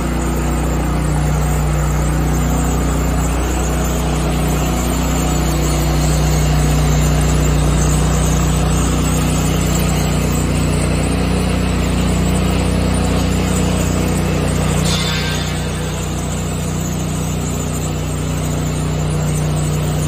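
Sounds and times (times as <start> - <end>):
floor grinding machine drone: 0.0 - 20.0.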